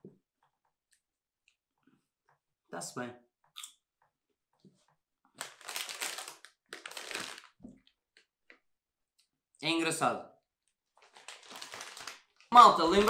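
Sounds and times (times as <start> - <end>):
plastic snack bag crinkling: 5.4 - 8.0, 10.9 - 13.0.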